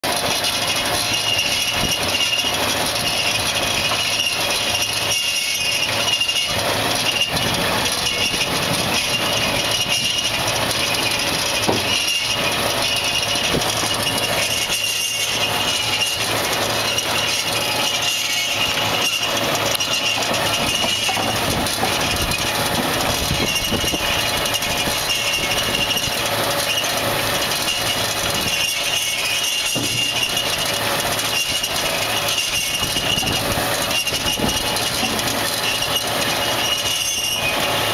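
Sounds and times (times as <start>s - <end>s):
harvester clatter and rumble: 0.0s - 37.9s
high mechanical whine: 0.0s - 37.9s.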